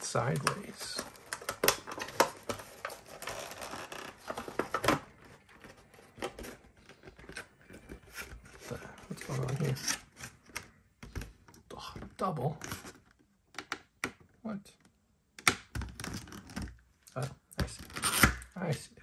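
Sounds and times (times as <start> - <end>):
plastic packaging crinkling: 0.0 - 10.4.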